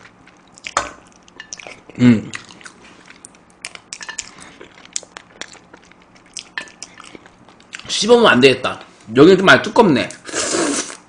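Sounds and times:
close chewing crunches: 0:00.0 - 0:07.9.

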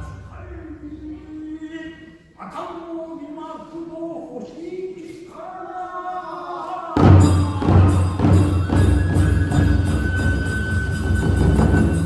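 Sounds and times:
person singing: 0:05.8 - 0:08.8
large drum beating: 0:07.0 - 0:12.0.

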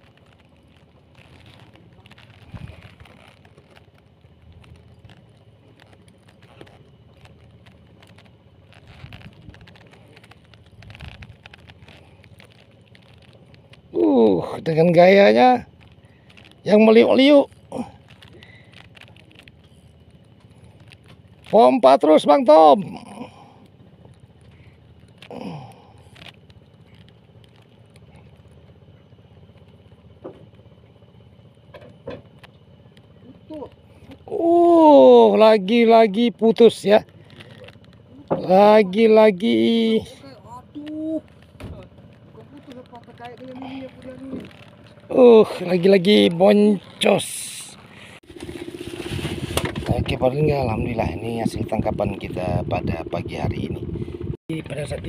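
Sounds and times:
low rumble: 0:00.0 - 0:21.6, 0:40.2 - 0:55.0
boat engine humming: 0:00.0 - 0:55.0.

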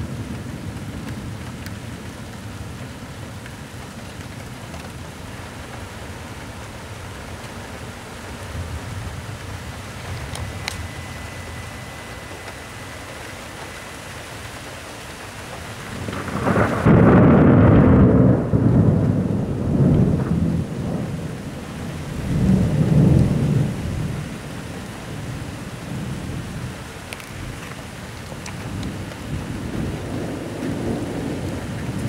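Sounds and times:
steady rain: 0:00.0 - 0:32.0
rolling thunder: 0:15.8 - 0:24.5, 0:28.5 - 0:32.0.

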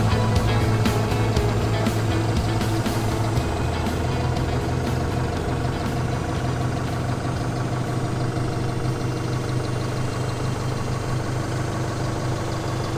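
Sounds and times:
forklift engine idling: 0:00.0 - 0:12.9.

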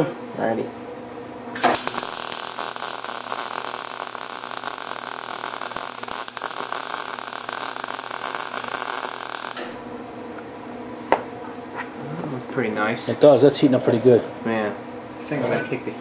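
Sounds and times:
welder arc crackling: 0:01.6 - 0:09.8.

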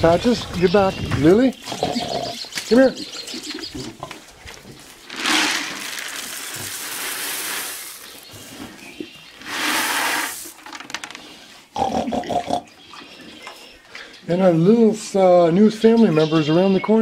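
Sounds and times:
feed pellets poured onto straw: 0:05.0 - 0:08.6, 0:09.4 - 0:10.8.

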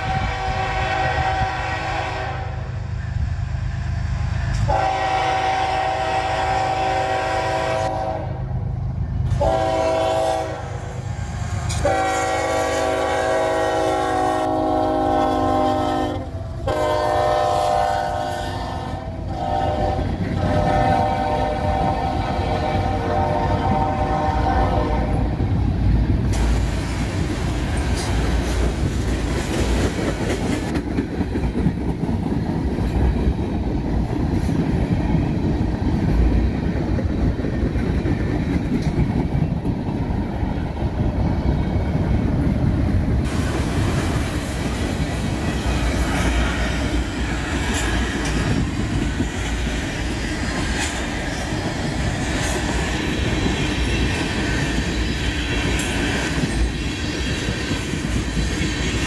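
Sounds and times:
train cars rumbling past: 0:00.0 - 0:59.0
wheels clicking over rail joints: 0:26.1 - 0:41.3, 0:41.9 - 0:56.8.

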